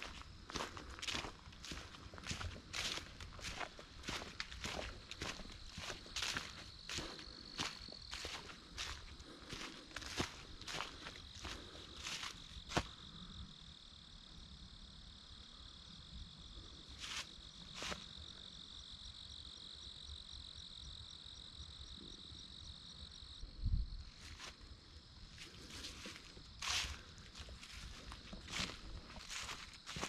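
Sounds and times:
footsteps crunching in dry leaves: 0.0 - 12.9, 25.4 - 30.0
crickets trilling: 0.0 - 30.0.

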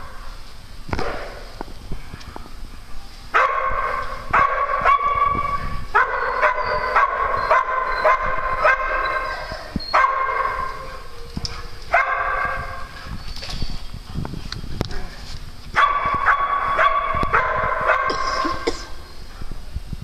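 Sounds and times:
small dogs barking and yipping: 3.4 - 13.2, 15.8 - 18.7.

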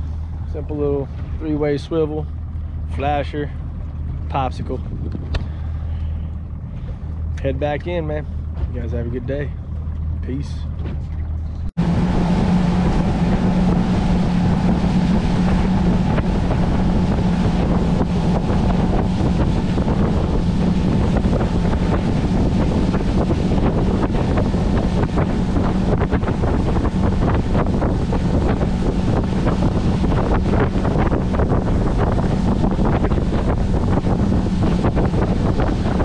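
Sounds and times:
wind noise on microphone: 0.0 - 9.0, 9.6 - 36.0
boat engine humming: 0.0 - 36.0.

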